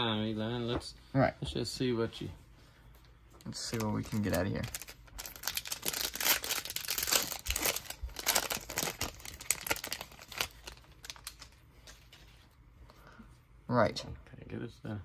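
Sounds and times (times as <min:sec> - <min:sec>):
wrapper tearing and crinkling: 0:03.6 - 0:11.6.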